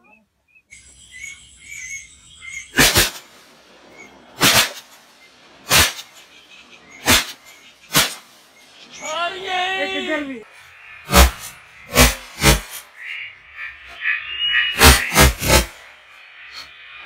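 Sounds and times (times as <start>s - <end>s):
faint high chirps: 0.0s - 17.0s
shotgun shots: 2.8s - 3.3s, 4.4s - 4.9s, 5.7s - 6.1s, 7.0s - 8.3s, 11.1s - 12.8s, 14.8s - 15.7s.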